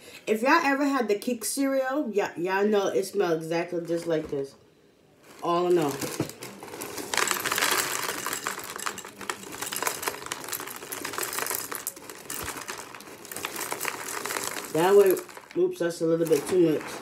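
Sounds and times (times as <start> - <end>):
cereal pouring into a bowl: 5.3 - 17.0.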